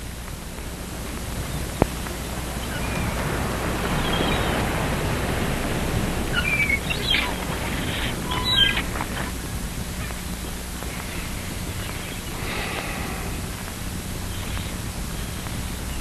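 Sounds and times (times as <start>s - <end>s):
outdoor ambience hiss: 0.0s - 16.0s
high bird chirps: 1.4s - 3.2s, 3.8s - 4.9s, 6.3s - 13.5s.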